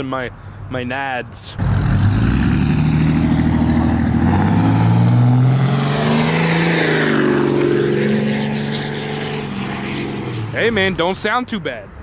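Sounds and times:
diesel truck accelerating past: 1.6 - 10.7.

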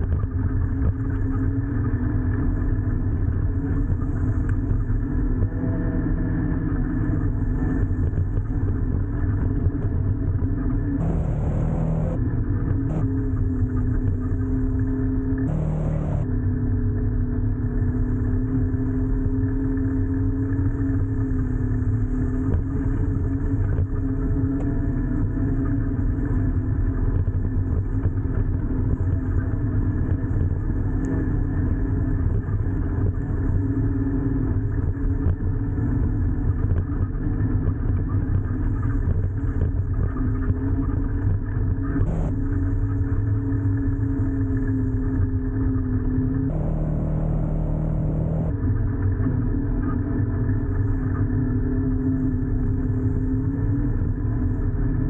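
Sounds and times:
vehicle engine hum: 0.0 - 55.0
road rumble: 6.1 - 16.8, 41.8 - 49.6.

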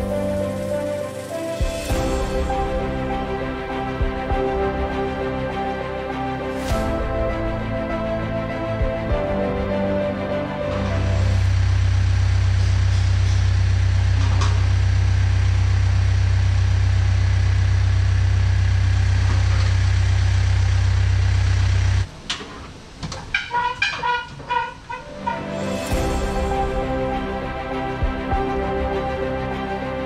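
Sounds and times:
music: 0.0 - 13.0, 24.5 - 30.0
engine idling: 10.6 - 22.1.

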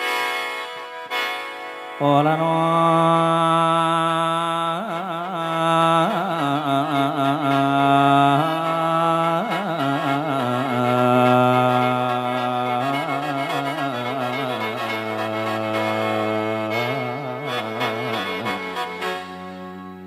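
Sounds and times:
bamboo mouth organ playing: 9.5 - 20.0.

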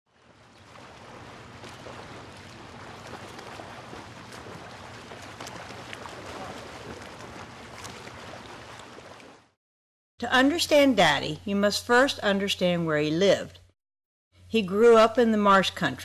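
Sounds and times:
water: 0.1 - 9.6, 14.4 - 16.0
wind: 0.1 - 9.6.

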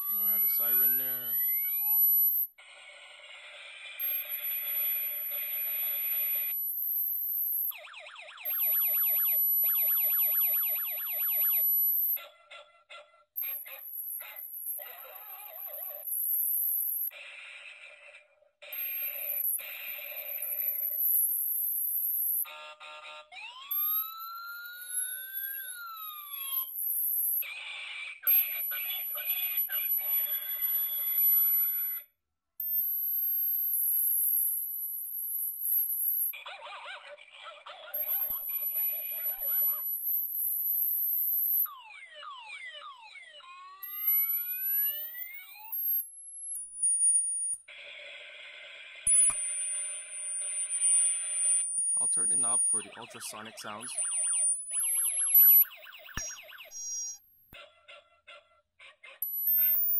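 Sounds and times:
high whistle-like tone: 0.0 - 2.0, 43.4 - 47.6, 49.1 - 57.3
siren wailing from speaker: 0.0 - 2.4, 7.5 - 12.2, 22.4 - 26.9, 41.0 - 48.4, 49.1 - 57.3
high-pitched electronic whine: 0.0 - 2.5, 3.9 - 12.2, 40.1 - 47.7, 49.1 - 57.3.

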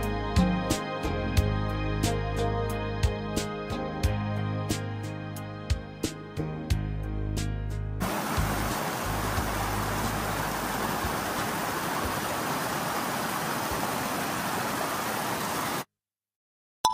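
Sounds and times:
water rushing over rocks: 8.0 - 15.9.

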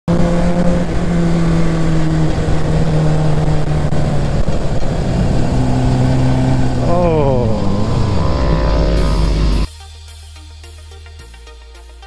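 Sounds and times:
motorcycle engine cruising: 0.0 - 9.7
wind rushing over microphone: 0.1 - 9.7.

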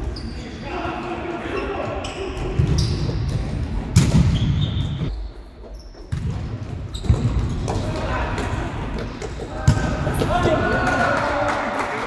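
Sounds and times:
shoe squeaks: 0.0 - 0.7, 1.4 - 3.4, 4.3 - 6.2, 6.9 - 7.3.

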